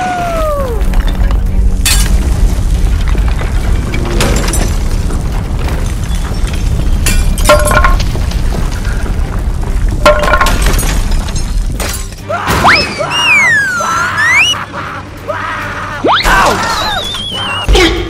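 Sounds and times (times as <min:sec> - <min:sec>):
crashing breaking hits: 0:00.7 - 0:13.1
rising cartoon whistle: 0:12.6 - 0:14.6, 0:16.1 - 0:17.7.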